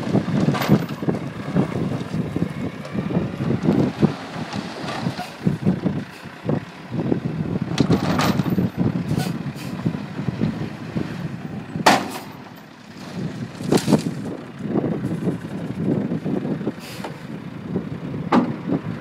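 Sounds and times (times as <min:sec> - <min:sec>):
concrete chunks rumbling and clattering: 0:00.0 - 0:05.6, 0:07.8 - 0:08.8, 0:11.8 - 0:14.4.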